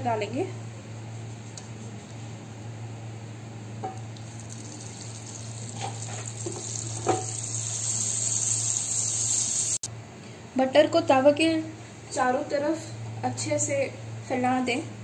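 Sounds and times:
butter sizzling on a griddle: 0:04.2 - 0:09.9.

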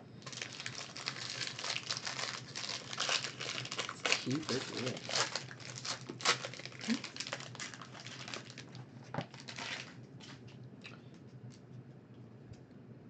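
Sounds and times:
foil wrapper crinkling: 0:00.2 - 0:10.4.

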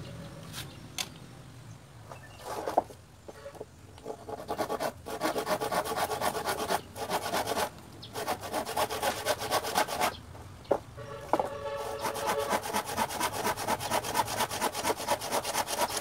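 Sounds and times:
handsaw cutting wood: 0:04.0 - 0:10.2, 0:11.7 - 0:16.0.

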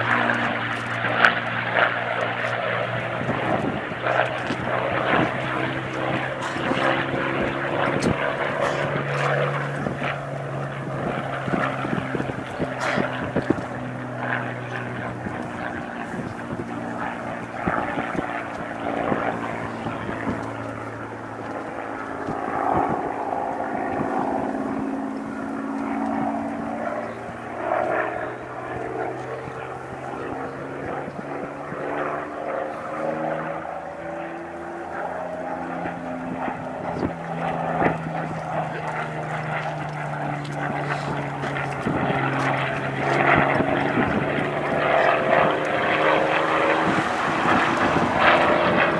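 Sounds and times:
propeller plane engine flying overhead: 0:00.0 - 0:48.9.

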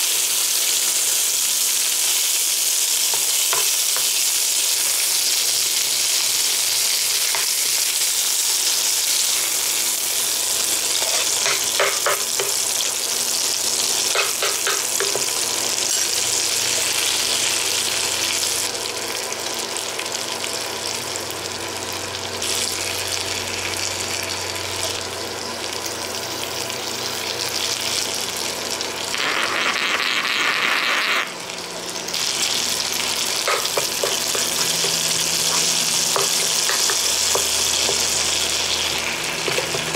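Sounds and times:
meat sizzling in a frying pan: 0:00.0 - 0:39.9
metal spoon scraping a pan: 0:11.0 - 0:12.6.

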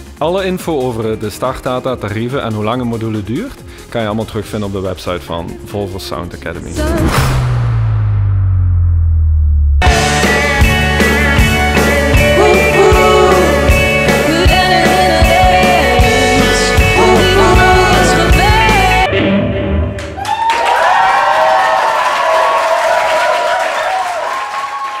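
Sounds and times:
lead singer: 0:09.8 - 0:19.9
live rock band playing: 0:09.8 - 0:19.9
audience applauding and cheering: 0:20.0 - 0:25.0.

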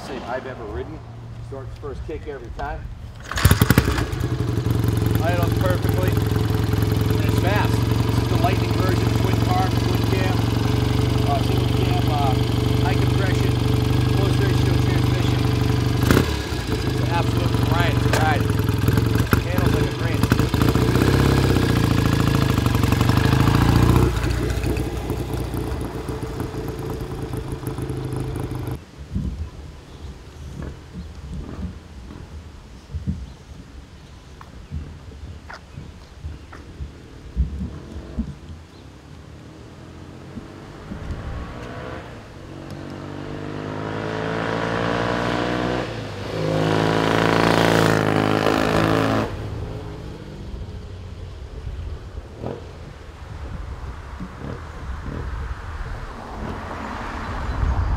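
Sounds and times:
motorcycle engine running: 0:03.1 - 0:28.8, 0:39.8 - 0:55.2.

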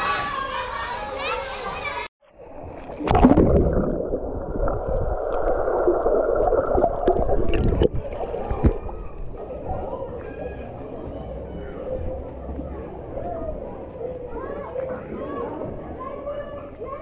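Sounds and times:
open-air water sound: 0:01.9 - 0:17.0
muffled underwater rush: 0:02.2 - 0:16.0
water splash: 0:02.6 - 0:09.4.

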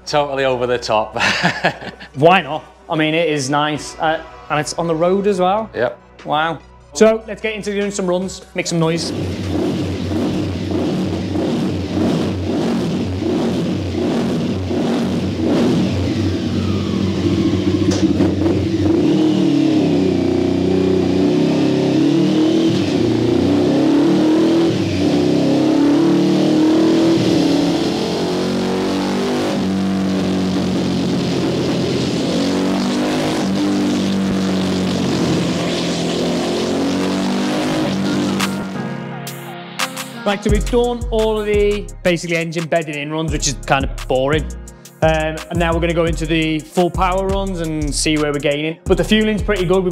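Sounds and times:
motorcycle engine revving loud: 0:09.0 - 0:38.8.

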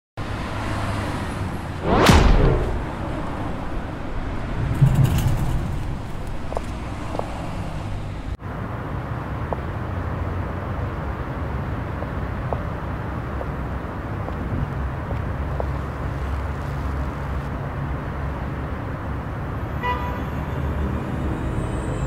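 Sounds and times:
street traffic noise: 0:00.2 - 0:22.0
fly-by whoosh: 0:01.1 - 0:08.4.

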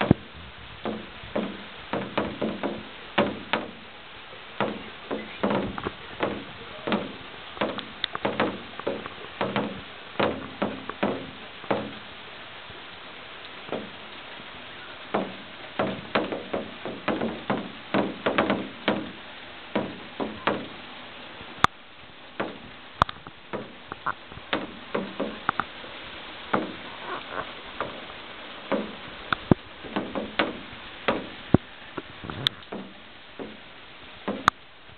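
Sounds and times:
rain hiss: 0:00.0 - 0:34.9
drops knocking on hard surface: 0:04.6 - 0:12.0, 0:29.9 - 0:31.3, 0:32.7 - 0:33.6, 0:34.3 - 0:34.6.

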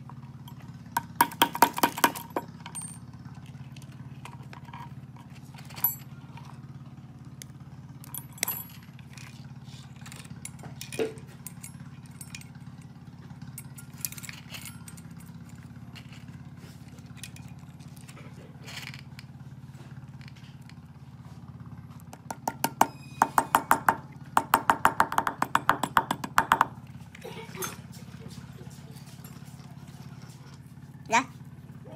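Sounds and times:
bicycle chain links clinking: 0:00.4 - 0:06.4, 0:08.0 - 0:16.4
hammer tapping chain pin: 0:01.0 - 0:03.0, 0:05.8 - 0:06.1, 0:08.0 - 0:08.8, 0:22.1 - 0:26.8.

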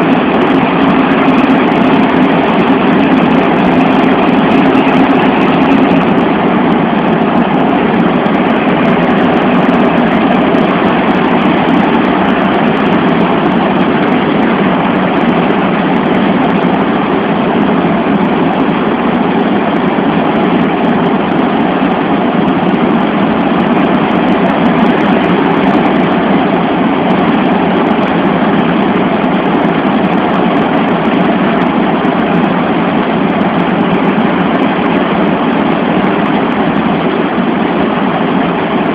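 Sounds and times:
aircraft cabin engine noise: 0:00.0 - 0:38.9.

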